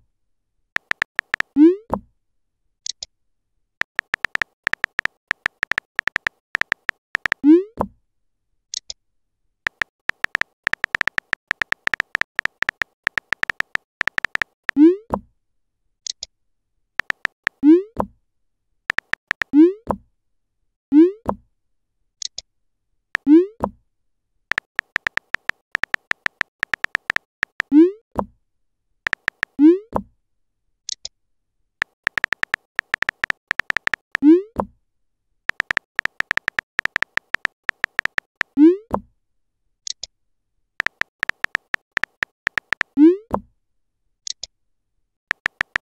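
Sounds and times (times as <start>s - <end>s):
phone keyboard clicks: 0.8s - 1.5s, 3.8s - 7.4s, 9.7s - 14.8s, 17.0s - 17.6s, 18.9s - 19.5s, 24.5s - 27.7s, 29.1s - 29.5s, 31.8s - 34.2s, 35.5s - 38.5s, 40.8s - 43.0s, 45.3s - 45.9s.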